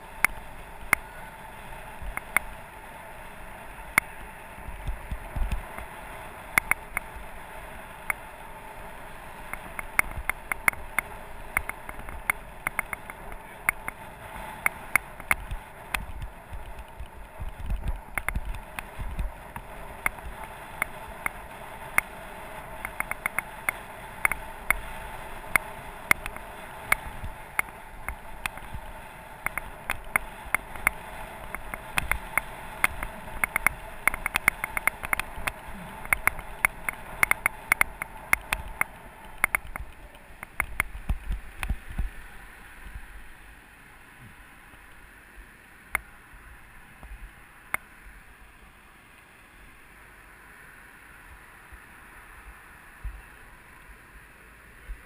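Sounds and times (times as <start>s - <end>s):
low wind buffeting: 0.0s - 45.6s
bike clicks and rattles: 2.0s - 2.6s, 3.9s - 7.2s, 9.5s - 22.1s, 22.7s - 42.0s.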